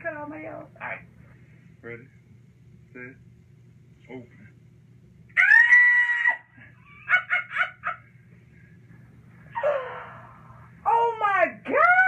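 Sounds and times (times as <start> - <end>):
shrill held cry: 5.4 - 6.6.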